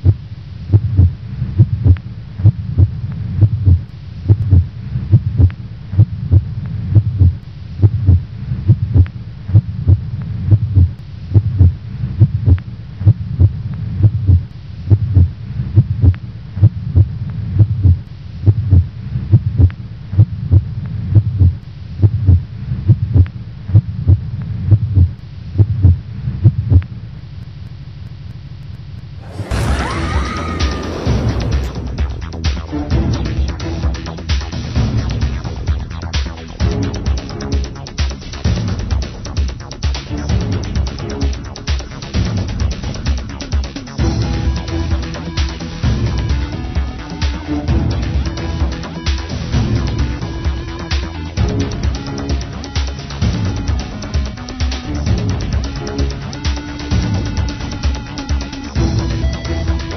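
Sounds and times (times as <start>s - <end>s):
heartbeat thuds: 0.0s - 26.9s
steady low hum: 0.0s - 29.8s.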